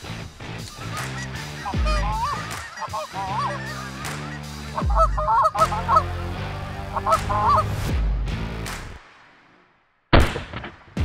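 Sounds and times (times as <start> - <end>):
background music with low notes: 0.0 - 9.6
geese honking: 0.5 - 7.9.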